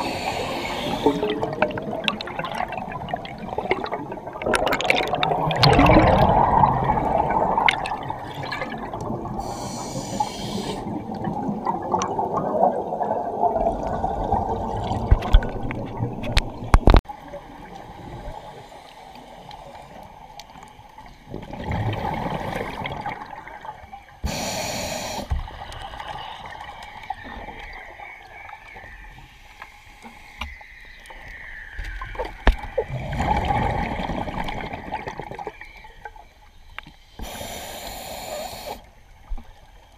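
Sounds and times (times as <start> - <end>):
diver breathing through regulator: 0.0 - 1.4, 9.4 - 11.0, 24.2 - 25.3
exhaled bubbles rushing: 0.0 - 9.6, 10.8 - 17.0, 21.3 - 23.9, 32.8 - 35.8.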